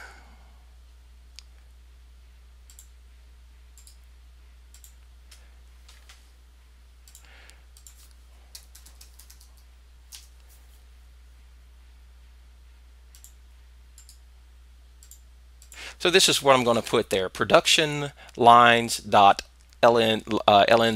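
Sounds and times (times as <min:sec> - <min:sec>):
steady low hum: 0:00.0 - 0:20.9
computer mouse clicks: 0:02.7 - 0:02.9, 0:03.8 - 0:04.0, 0:04.7 - 0:06.2, 0:07.0 - 0:10.4, 0:13.1 - 0:13.4, 0:14.0 - 0:14.2, 0:15.0 - 0:15.8
keyboard typing: 0:07.1 - 0:10.3.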